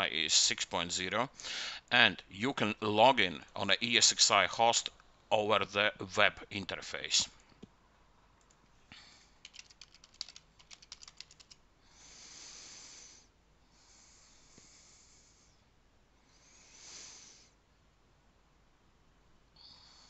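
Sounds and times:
soft breaths into microphone: 1.3 - 1.9, 11.8 - 17.6
computer keyboard typing: 9.4 - 11.6.

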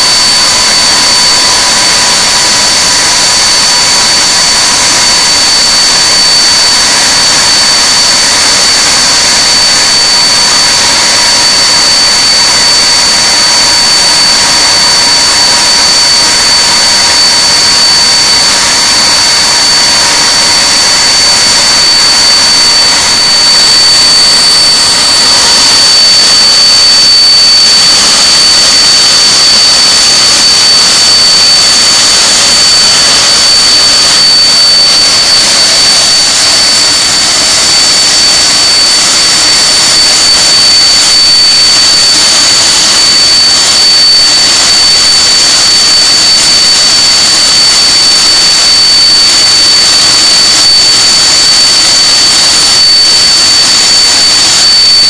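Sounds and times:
jet engines running: 4.0 - 6.5, 13.0 - 45.1.

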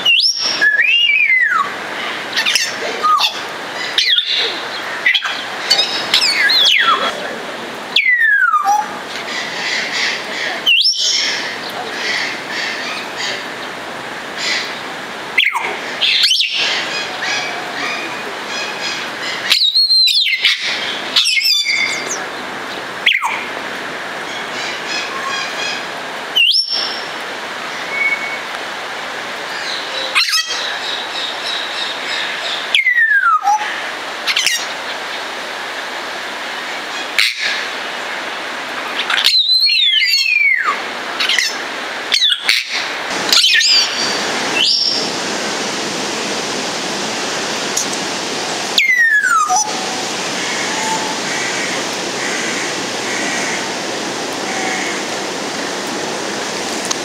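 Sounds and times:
steady hiss: 8.9 - 32.7, 39.9 - 57.0.

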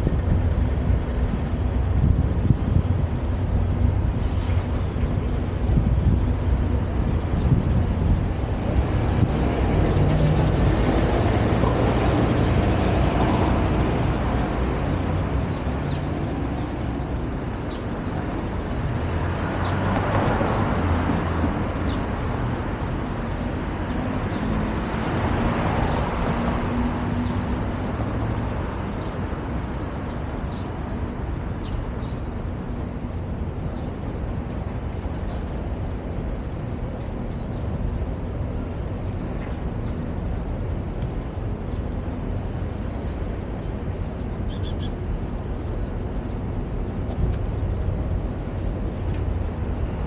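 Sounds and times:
city traffic: 0.0 - 50.0
vehicles passing: 0.0 - 50.0
small birds chirping: 42.9 - 45.1.

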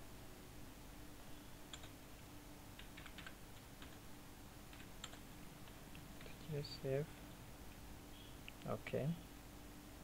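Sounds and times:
keyboard typing: 1.7 - 2.0, 2.8 - 4.0, 4.7 - 6.4.

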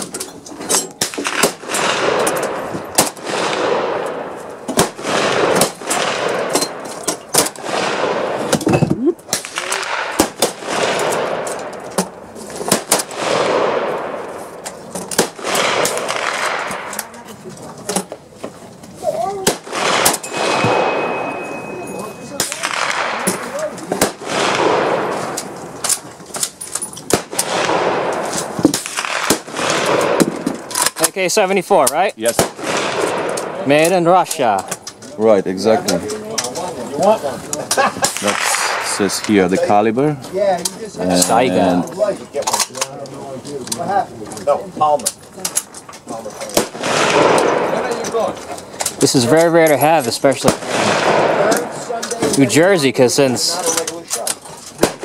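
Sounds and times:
rifle shots echoing: 1.0 - 8.6, 9.3 - 17.2, 19.4 - 34.6, 38.0 - 39.6, 46.4 - 53.7, 54.7 - 55.0.

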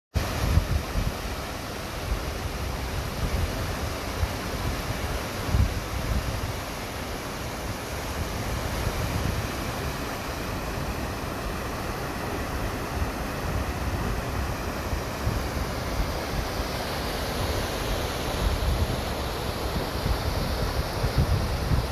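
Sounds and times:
wind buffeting microphone: 0.2 - 1.4, 2.1 - 6.6, 13.0 - 21.9
water rushing over weir: 0.2 - 21.9.

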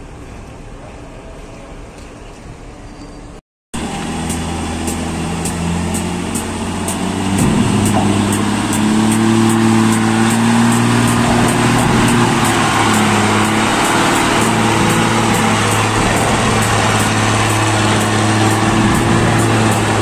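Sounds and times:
diesel truck engine pulling hard: 3.8 - 20.0.

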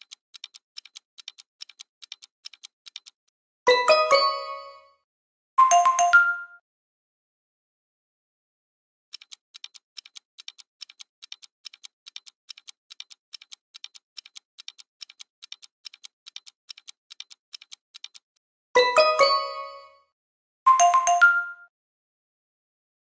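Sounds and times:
clock ticking: 0.0 - 4.7, 9.1 - 19.6.

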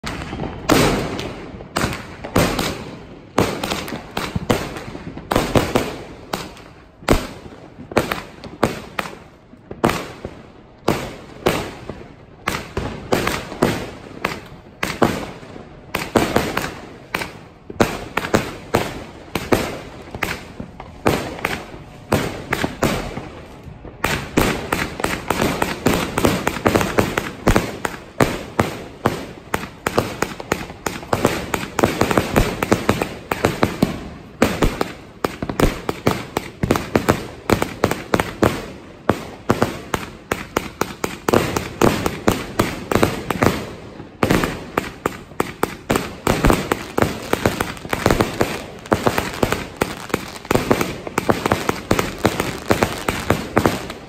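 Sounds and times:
firework bangs: 0.0 - 54.0.

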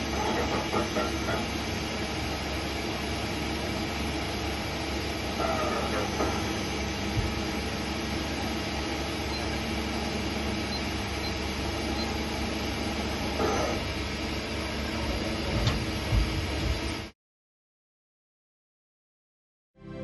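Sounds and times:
machine hum and whir: 0.0 - 17.2
machine squeal: 13.3 - 13.9.

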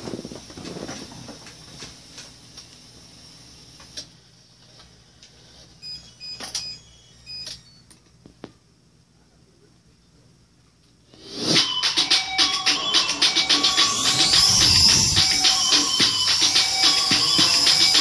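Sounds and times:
short high electronic beeps: 5.8 - 7.8, 12.4 - 18.0.

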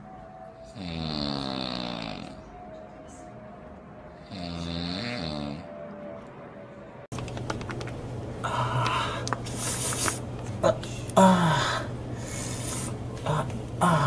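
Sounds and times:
steady low hum: 7.1 - 14.0.

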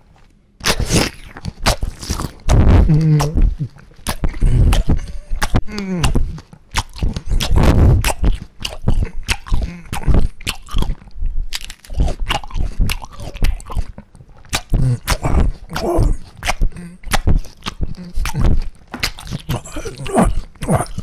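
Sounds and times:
loud crunching bites and chewing: 4.0 - 21.0
short pitched vocal noises: 14.7 - 17.2, 19.5 - 21.0.

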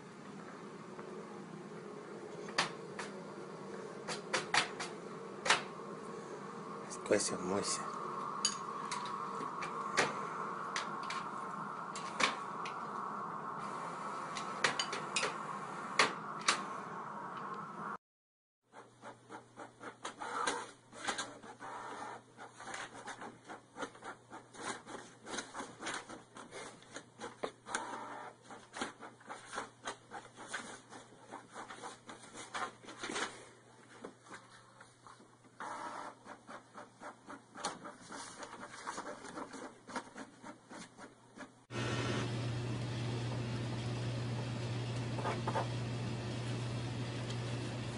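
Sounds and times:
printer low hum: 0.0 - 18.0, 35.6 - 37.4, 41.7 - 47.9
printer clicking and whirring: 4.0 - 5.8, 19.8 - 22.2, 27.6 - 30.0, 35.6 - 37.9.

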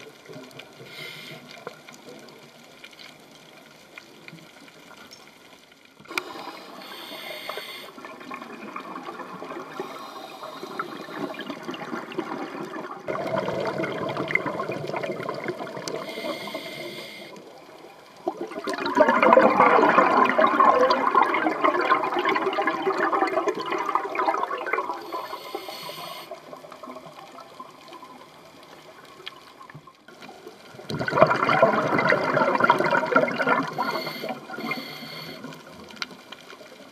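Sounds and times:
regulator exhaust bubbles underwater: 7.9 - 16.7, 18.2 - 25.6, 30.7 - 35.8.

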